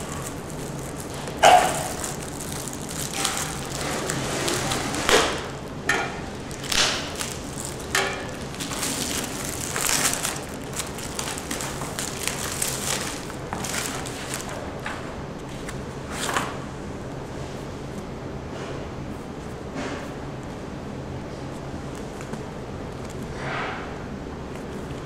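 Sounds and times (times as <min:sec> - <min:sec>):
plastic wrapping crinkling: 0:00.0 - 0:14.9.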